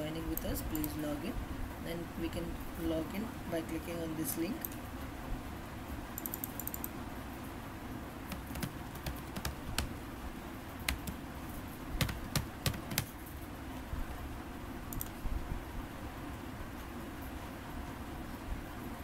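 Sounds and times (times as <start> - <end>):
computer keyboard typing: 6.2 - 6.9, 8.3 - 10.0, 10.8 - 11.2, 12.0 - 13.2.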